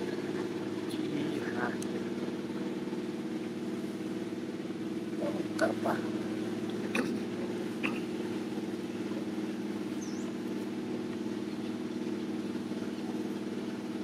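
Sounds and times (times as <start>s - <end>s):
steady engine-like hum: 0.0s - 14.0s
faint high chirp: 10.0s - 10.4s.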